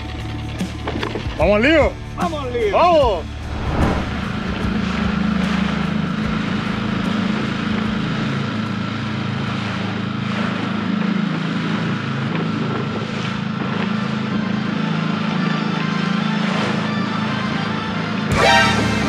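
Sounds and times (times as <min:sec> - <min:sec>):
outboard motor running: 0:00.0 - 0:03.5, 0:04.3 - 0:19.0
wind: 0:00.0 - 0:19.0
water rushing past hull: 0:02.8 - 0:14.3.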